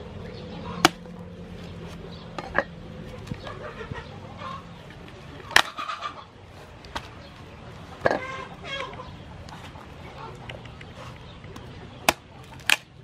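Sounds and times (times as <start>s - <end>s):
chickens clucking: 0.2s - 13.0s
cleaver chopping fruit husk: 0.8s - 3.3s, 5.0s - 5.8s, 11.5s - 13.0s.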